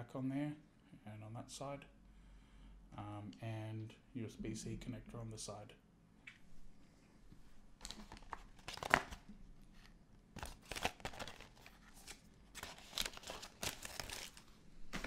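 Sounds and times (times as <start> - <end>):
packaging rustling and crinkling: 7.8 - 15.0.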